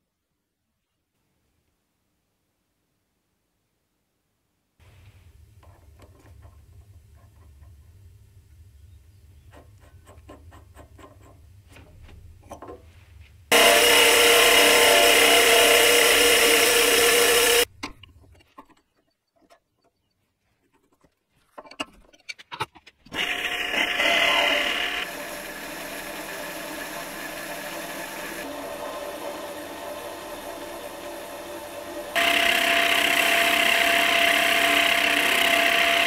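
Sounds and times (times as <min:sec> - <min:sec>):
lathe cutting metal: 0:13.5 - 0:17.7, 0:23.2 - 0:36.0.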